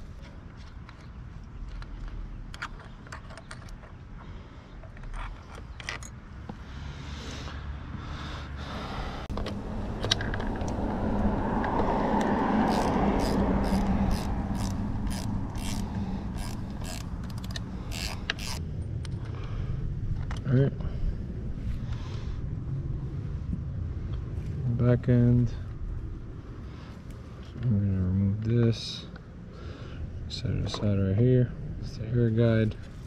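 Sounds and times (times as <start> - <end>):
low hum: 4.2 - 30.4
broad rushing noise: 6.8 - 19.0
ratchet wrench clicking: 12.7 - 18.6.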